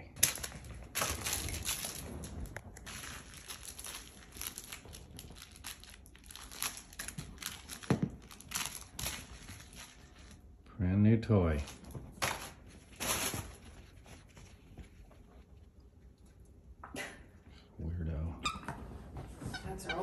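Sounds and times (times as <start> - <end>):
fabric rustling and crinkling: 0.2 - 10.6, 11.4 - 15.7.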